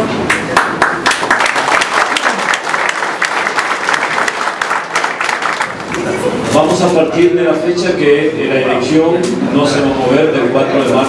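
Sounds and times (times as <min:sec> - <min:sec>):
people applauding: 0:00.2 - 0:06.4.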